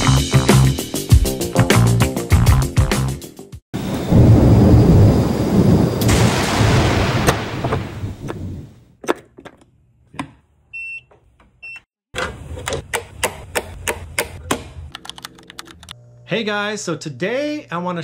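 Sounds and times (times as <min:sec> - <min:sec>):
thunder rumbling and cracking: 0:03.8 - 0:08.8.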